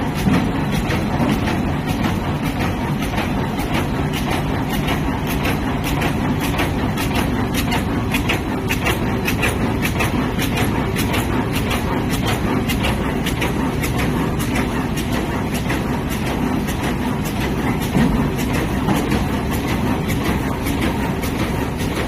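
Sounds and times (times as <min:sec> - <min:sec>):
machine rumble with rapid clacks: 0:00.0 - 0:22.0.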